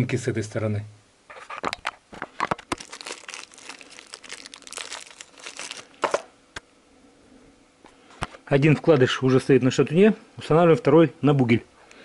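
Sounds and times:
plastic wrapping crinkling: 0:02.3 - 0:06.3.

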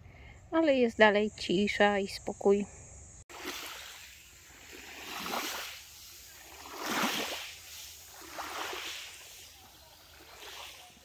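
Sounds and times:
small waves washing onto shore: 0:03.3 - 0:11.0.

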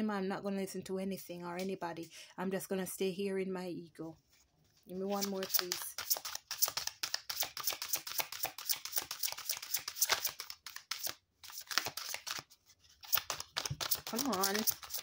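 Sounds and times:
cards shuffled: 0:05.0 - 0:15.0.

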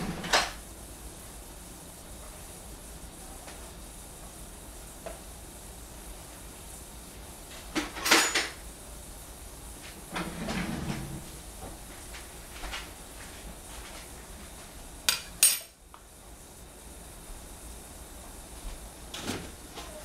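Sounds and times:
kitchenware clinking and knocking: 0:07.8 - 0:08.6.

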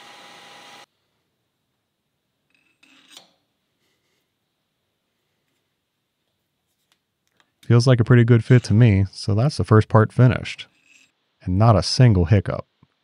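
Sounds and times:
metal scrape and clink: 0:10.7 - 0:11.2.

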